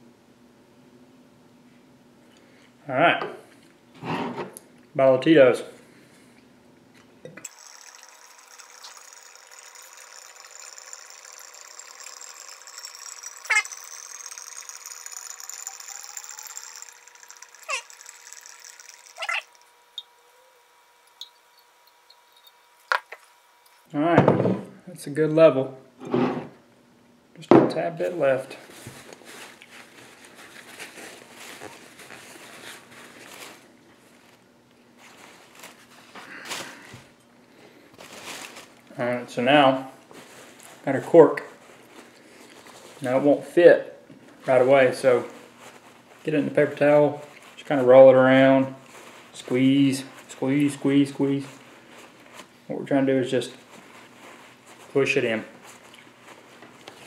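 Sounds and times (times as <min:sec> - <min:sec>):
liquid pouring into bottle: 0:07.4 - 0:20.1.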